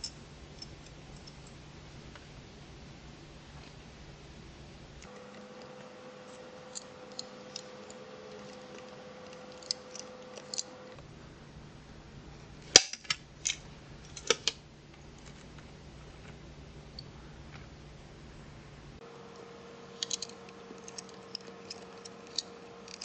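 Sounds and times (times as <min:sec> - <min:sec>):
metallic clicks of gun handles: 0:20.0 - 0:23.0.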